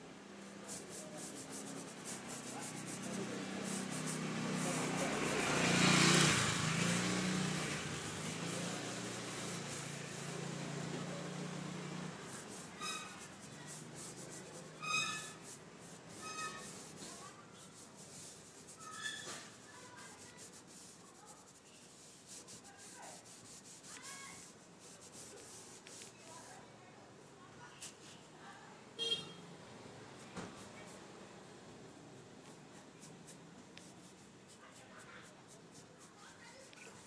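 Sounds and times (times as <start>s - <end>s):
paintbrush rubbing on wood: 0.3s - 26.6s, 27.3s - 28.2s, 30.1s - 31.2s, 32.4s - 37.0s.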